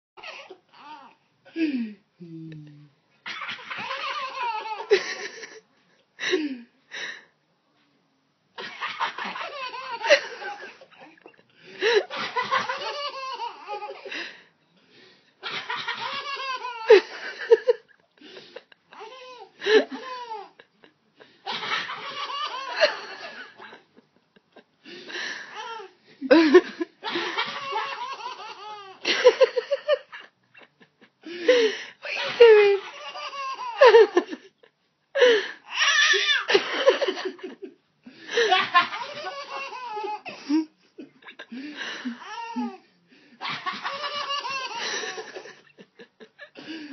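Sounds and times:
baby laughing: 3.3s - 5.0s, 8.8s - 11.4s, 12.0s - 14.1s, 15.4s - 17.3s, 18.9s - 20.6s, 21.5s - 23.4s, 27.0s - 29.4s, 32.2s - 34.2s, 38.5s - 40.3s, 42.0s - 42.8s, 43.4s - 45.6s.

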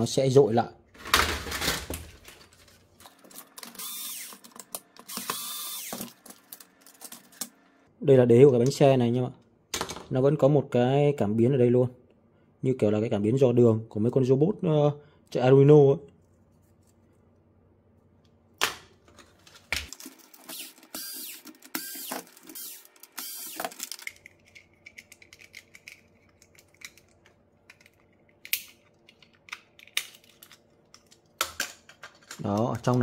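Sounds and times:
plastic scraping and rustling: 1.0s - 4.7s, 19.0s - 28.0s.

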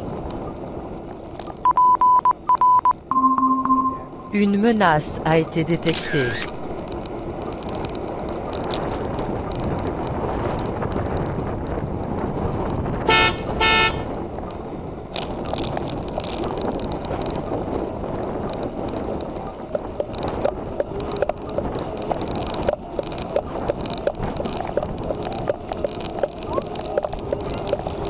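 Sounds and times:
wind and road noise: 0.0s - 28.0s
horn beeps: 1.7s - 4.4s, 13.1s - 14.0s.

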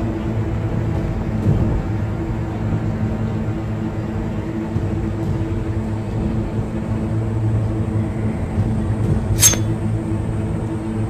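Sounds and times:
sharp metallic clink: 9.4s - 9.8s.

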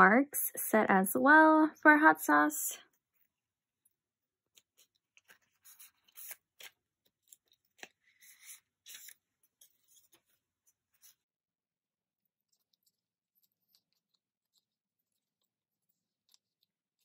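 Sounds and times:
plastic sleeves rustling: 4.5s - 11.2s.

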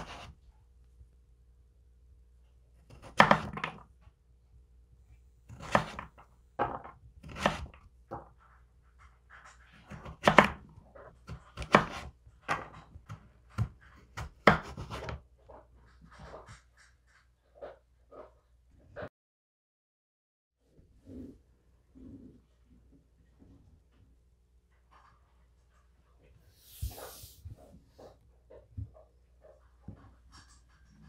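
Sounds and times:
knife chopping on wooden board: 0.0s - 0.3s, 2.9s - 3.8s, 5.5s - 8.3s, 9.8s - 15.2s
knife scraping board: 0.0s - 0.4s, 5.5s - 6.2s, 7.2s - 7.8s, 11.3s - 12.8s, 13.6s - 15.2s, 26.5s - 28.1s.

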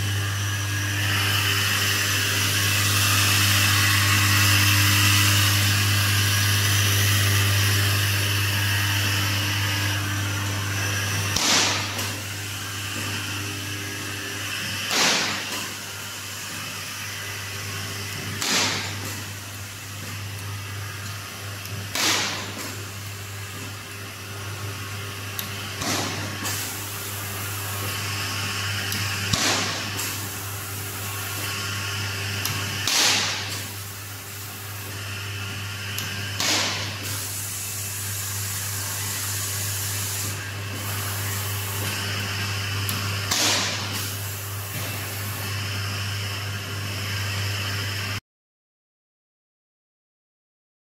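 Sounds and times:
electrical hum and machine noise: 0.0s - 48.2s
sharp welding crack with hiss: 11.3s - 12.3s, 14.6s - 15.9s, 18.2s - 23.7s, 25.4s - 27.5s, 29.0s - 31.5s, 32.4s - 34.9s, 36.0s - 42.0s, 42.9s - 45.3s.

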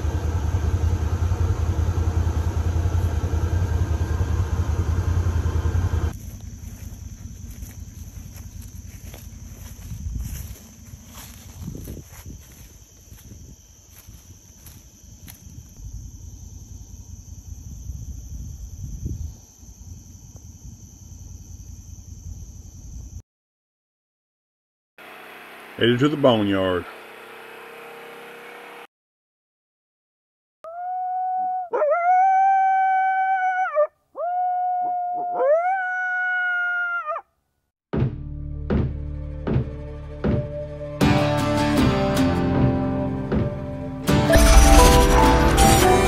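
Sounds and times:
low rumbling noise: 0.0s - 13.4s, 44.3s - 46.0s
crickets droning: 0.6s - 23.2s
dog howling: 30.7s - 37.2s.

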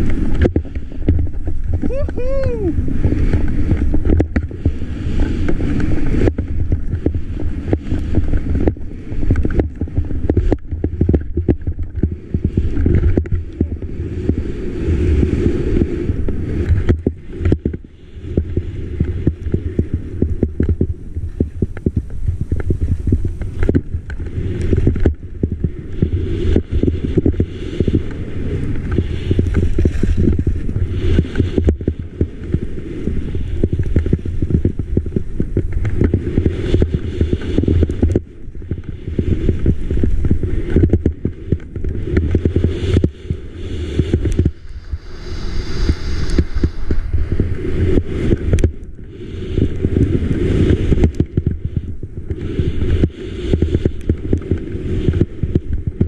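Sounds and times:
wind buffeting microphone: 0.0s - 56.0s
skis hissing through snow: 13.8s - 20.0s, 41.9s - 51.4s.

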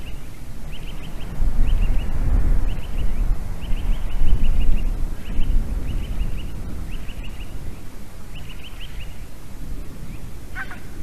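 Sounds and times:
wind rumbling on microphone: 0.0s - 11.0s
eagle yelping calls: 10.5s - 11.0s.

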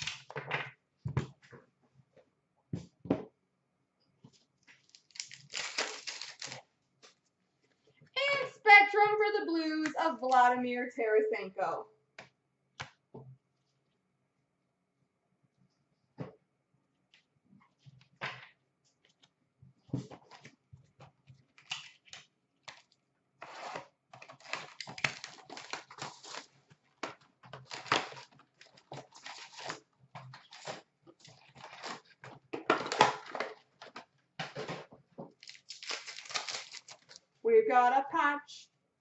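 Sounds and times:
paper rustling and tearing: 4.8s - 7.2s, 21.6s - 26.7s, 27.6s - 32.3s, 35.4s - 37.2s.

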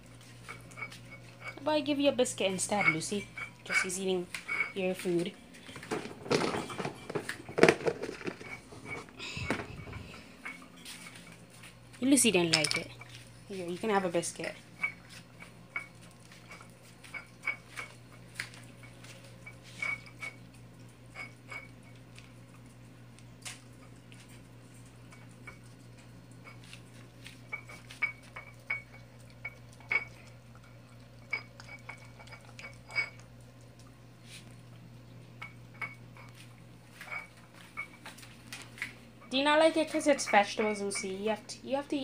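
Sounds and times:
steady low hum: 0.0s - 42.0s
metal bowl clinking: 0.4s - 11.4s, 12.3s - 20.4s, 21.1s - 22.3s, 27.5s - 33.4s, 35.4s - 38.4s, 39.2s - 42.0s
dog eating wet food: 14.6s - 35.4s.

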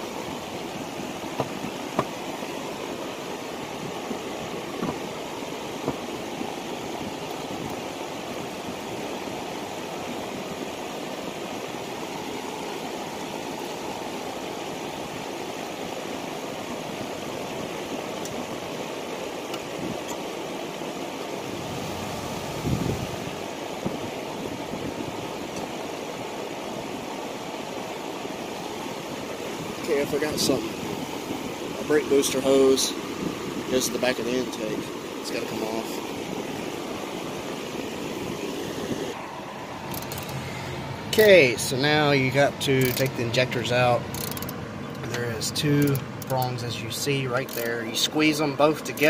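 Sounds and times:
steady rushing noise: 0.0s - 49.0s
tools knocking and clunking: 1.3s - 2.2s, 4.8s - 5.0s.

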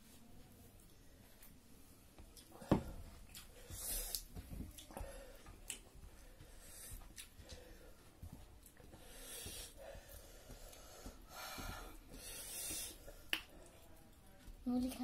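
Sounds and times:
chewing: 2.3s - 15.0s
breaths through the nose: 8.9s - 13.6s.

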